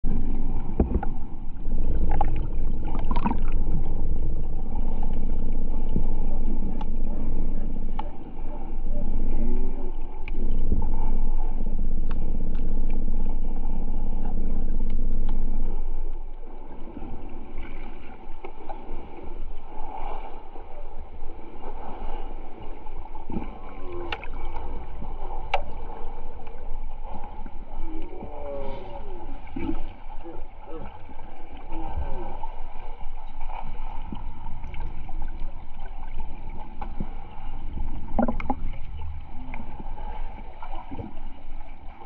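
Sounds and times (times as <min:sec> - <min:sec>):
low underwater rumble: 0:00.0 - 0:42.0
water noise: 0:00.0 - 0:42.0
bubbly warbles: 0:00.1 - 0:05.4, 0:38.0 - 0:39.6.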